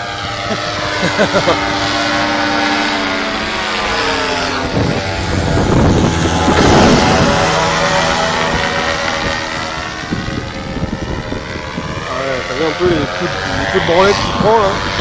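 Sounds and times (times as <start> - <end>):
paramotor engine and propeller droning: 0.0 - 15.0.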